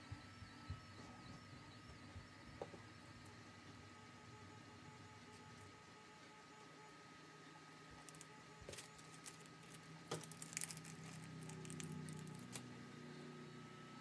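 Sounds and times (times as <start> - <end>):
plastic zip bag crinkling: 8.0 - 12.7
small parts clicking: 8.0 - 12.7.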